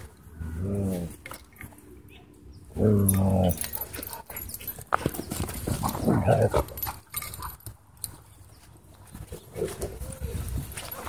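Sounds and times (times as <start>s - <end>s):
dogs scuffling: 3.1s - 11.0s.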